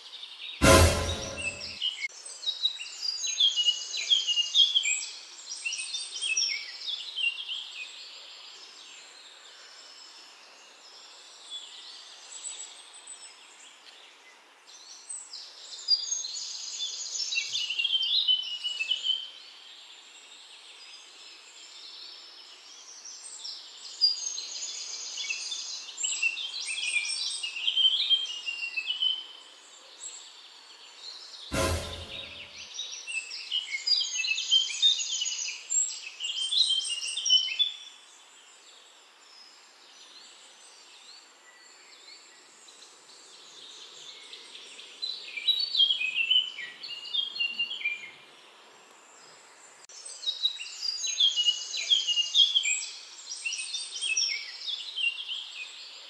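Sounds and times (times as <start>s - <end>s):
faint outdoor hiss: 1.8s - 56.0s.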